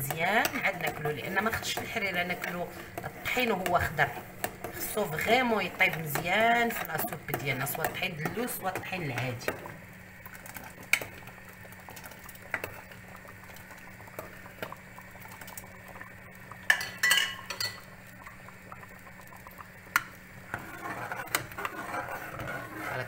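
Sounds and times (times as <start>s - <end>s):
spoon stirring in cooking pot: 0.0s - 23.0s
spoon clinking against pot: 16.7s - 17.8s.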